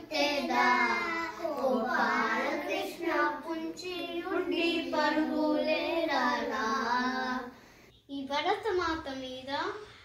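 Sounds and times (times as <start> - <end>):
young children singing: 0.0 - 7.6.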